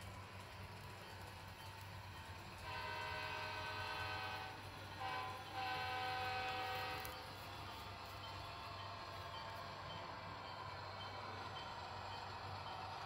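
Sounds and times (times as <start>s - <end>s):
locomotive horn chord: 2.6s - 7.2s.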